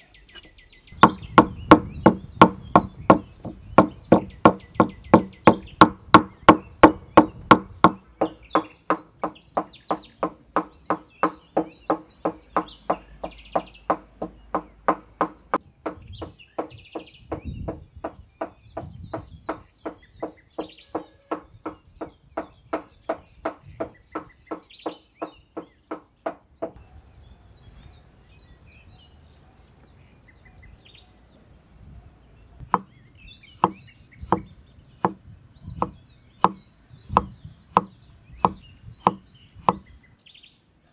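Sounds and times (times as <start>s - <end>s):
birds chirping: 0.0s - 40.9s
cleaver chopping on wooden block: 1.0s - 23.2s, 32.6s - 32.9s, 33.6s - 35.2s, 35.8s - 39.9s.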